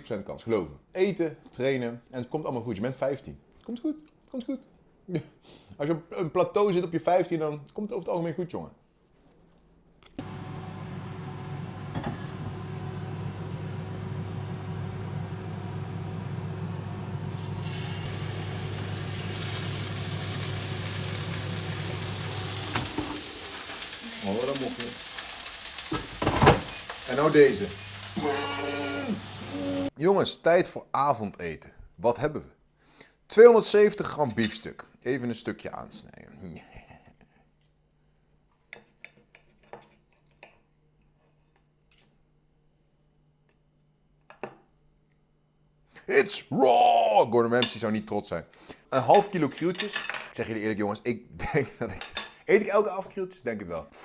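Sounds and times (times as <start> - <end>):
steaks sizzling in frying pan: 17.3 - 29.9.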